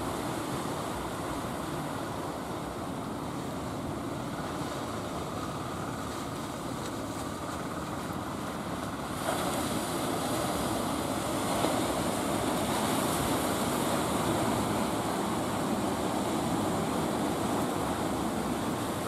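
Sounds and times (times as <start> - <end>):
sea surf breaking: 0.0 - 19.0.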